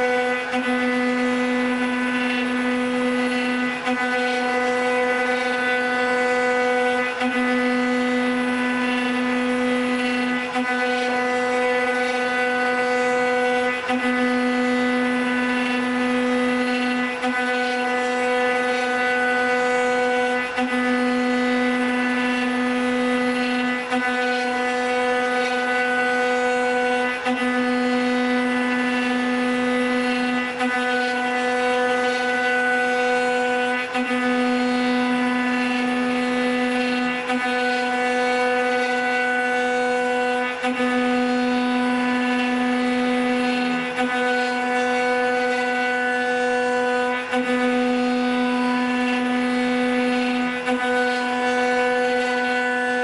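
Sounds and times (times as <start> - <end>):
router spindle whine carving wood: 0.0 - 53.0.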